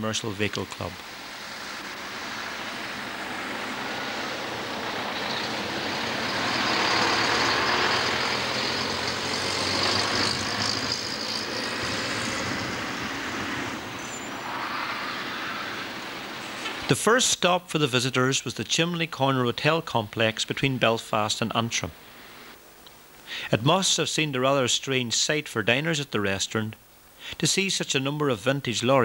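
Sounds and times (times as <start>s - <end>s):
lorries driving past: 0.0s - 17.0s.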